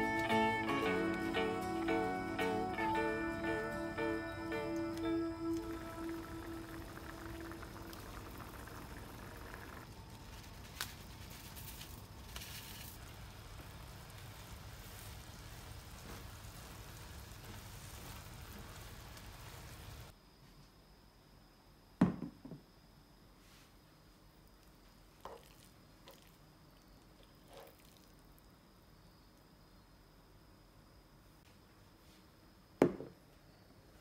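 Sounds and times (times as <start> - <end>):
sauce bubbling in a pan: 5.5 - 10.2, 12.0 - 20.1, 25.2 - 28.4.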